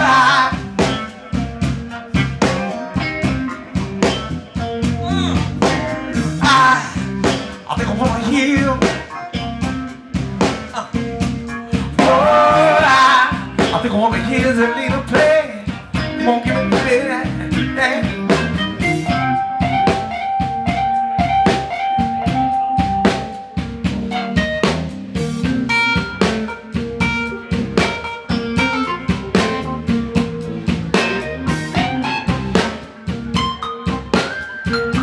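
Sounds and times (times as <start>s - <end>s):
drum kit: 0.0s - 35.0s
electric guitar: 0.0s - 35.0s
electronic keyboard: 18.6s - 35.0s.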